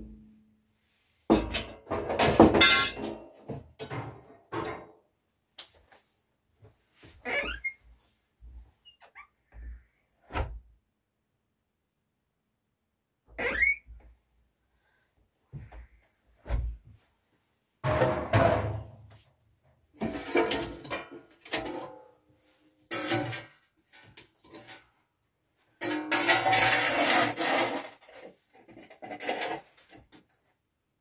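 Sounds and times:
basin clattering on wooden floor: 1.3s - 4.9s, 17.8s - 19.0s, 20.0s - 21.9s.

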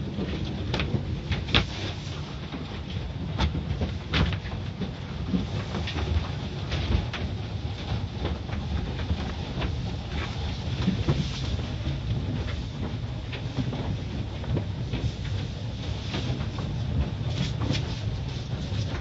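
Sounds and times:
low rumble of wash machinery: 0.0s - 19.0s.

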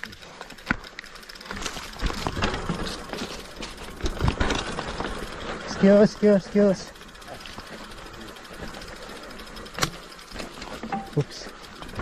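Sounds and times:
bike rattling and clicking: 0.0s - 12.0s
tyres over dirt and leaves: 0.0s - 12.0s
bike knocking on bumps: 0.4s - 6.0s, 7.4s - 11.2s.

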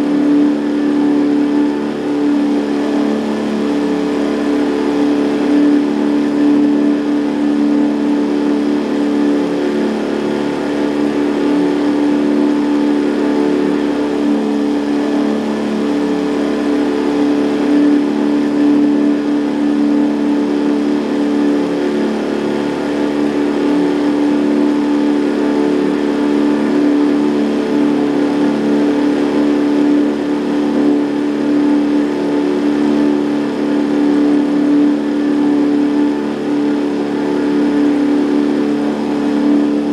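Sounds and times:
outboard motor running: 0.0s - 39.9s.

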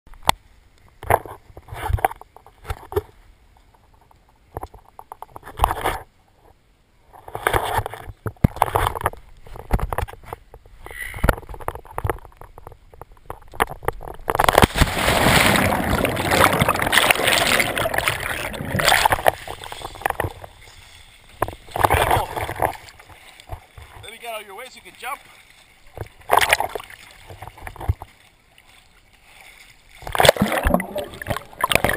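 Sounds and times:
water sloshing: 11.4s - 31.9s
loud splash into water: 14.4s - 19.4s, 30.0s - 31.9s
underwater bubbles gurgling: 14.8s - 20.5s, 30.0s - 31.9s.

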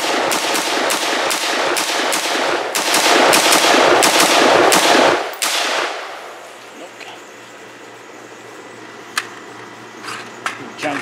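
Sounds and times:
rapid rifle fire with echo: 0.0s - 6.4s.

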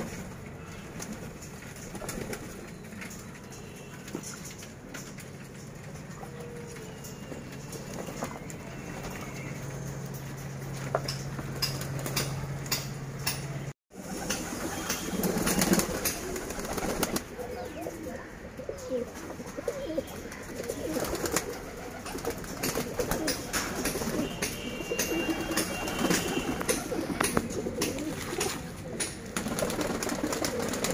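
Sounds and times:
pigeons cooing: 14.1s - 30.9s.

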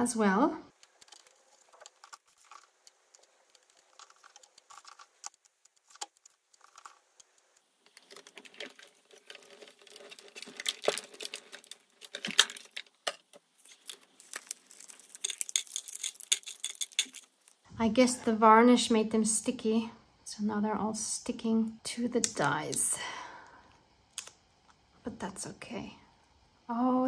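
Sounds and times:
paper crinkling: 0.7s - 17.6s.

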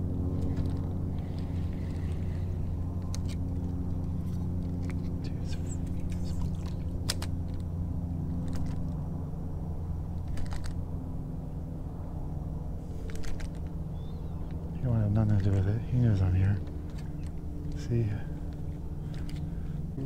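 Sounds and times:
electric trolling motor humming: 0.0s - 20.0s
fishing rod and reel clicks: 0.4s - 5.1s, 5.7s - 7.7s, 8.4s - 8.9s, 10.2s - 10.8s, 13.0s - 13.8s, 16.6s - 17.8s.

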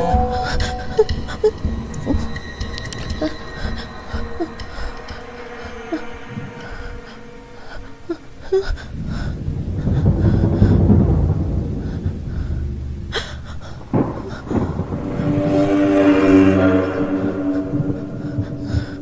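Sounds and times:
low rumbling drone: 0.0s - 19.0s
sharp orchestral hits: 13.0s - 19.0s.

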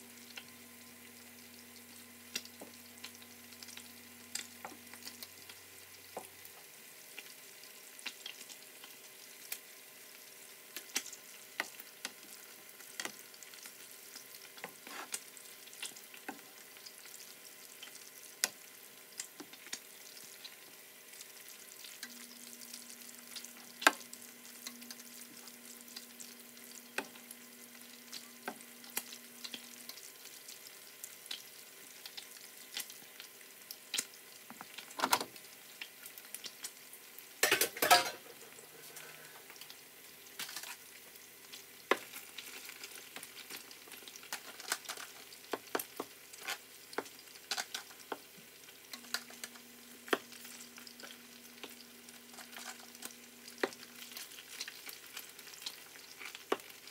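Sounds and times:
chicken sizzling in a pan: 0.0s - 56.9s
utensil scraping a pan: 14.8s - 15.2s.

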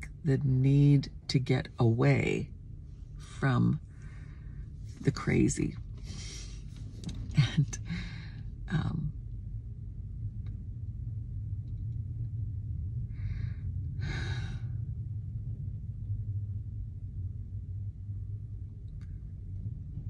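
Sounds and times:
car cabin hum: 0.0s - 9.5s
woman breathing: 3.0s - 5.0s, 5.9s - 6.9s, 7.7s - 8.6s, 13.0s - 15.1s
woman sighing: 7.6s - 8.4s, 14.0s - 14.8s.

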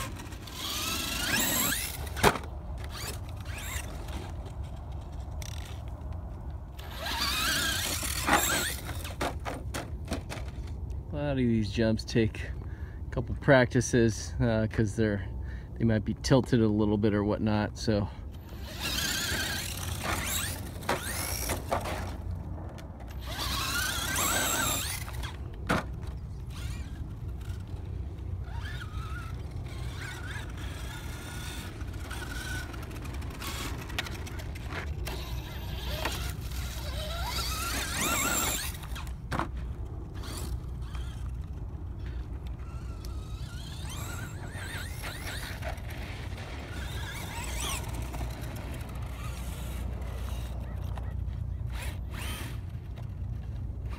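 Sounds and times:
electric motor whining: 0.0s - 4.4s, 6.8s - 9.2s, 18.4s - 22.2s, 23.1s - 39.3s, 40.0s - 51.0s, 51.7s - 53.2s.

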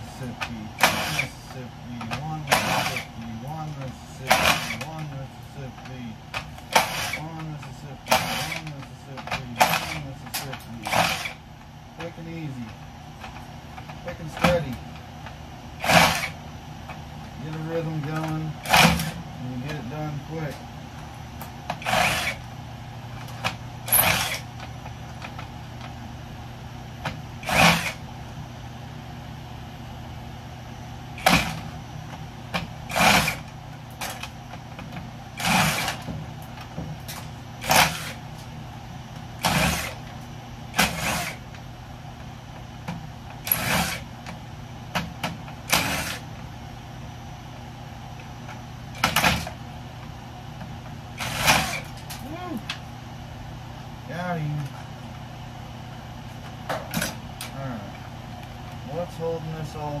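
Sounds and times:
power drill bursts: 0.8s - 1.4s, 2.4s - 3.2s, 4.3s - 4.9s, 6.7s - 7.4s, 8.0s - 8.8s, 9.6s - 10.2s, 10.8s - 11.4s, 15.8s - 16.4s, 18.6s - 19.2s, 21.8s - 22.4s, 23.9s - 24.5s, 27.4s - 28.0s, 31.2s - 31.6s, 32.9s - 34.2s, 35.4s - 36.1s, 37.6s - 38.2s, 39.4s - 40.0s, 40.7s - 41.4s, 43.4s - 44.1s, 45.7s - 46.3s, 51.2s - 51.9s.

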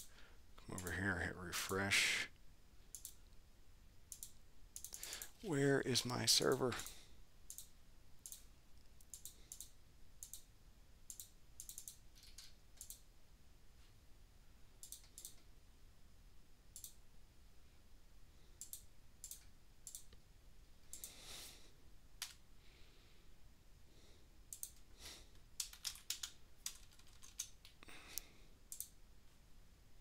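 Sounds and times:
computer mouse clicks: 2.9s - 3.4s, 4.1s - 5.4s, 7.5s - 10.5s, 11.1s - 13.1s, 14.8s - 15.5s, 16.7s - 17.0s, 18.6s - 20.2s, 20.8s - 21.2s, 22.2s - 22.4s, 24.5s - 24.9s, 25.6s - 29.0s
keyboard keystrokes: 25.6s - 27.8s.

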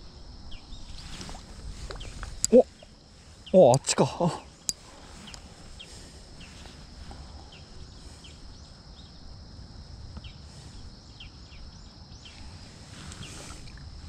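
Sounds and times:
wind rumble on microphone: 0.0s - 3.6s.

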